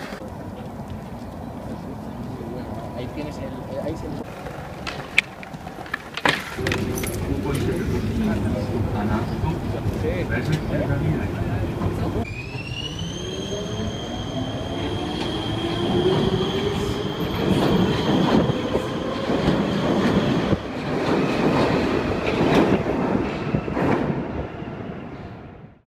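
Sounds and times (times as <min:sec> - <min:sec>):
train wheels clattering over rails: 0:15.2 - 0:24.3.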